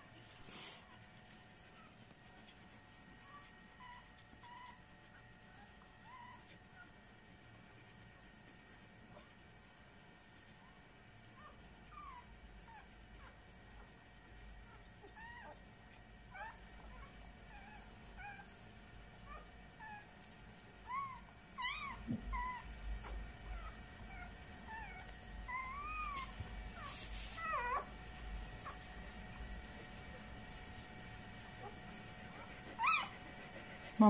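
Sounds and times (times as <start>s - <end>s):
puppies squeaking and whimpering: 3.2s - 7.0s, 11.4s - 13.3s, 14.7s - 15.6s, 20.8s - 27.9s, 31.6s - 33.4s.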